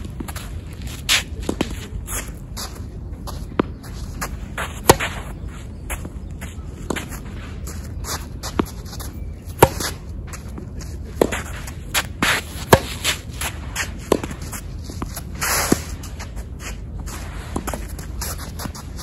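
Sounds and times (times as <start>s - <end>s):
shoes scuffing on court: 0.0s - 19.0s
racket striking tennis ball: 0.1s - 5.4s, 6.8s - 19.0s
ball bouncing: 11.2s - 15.8s.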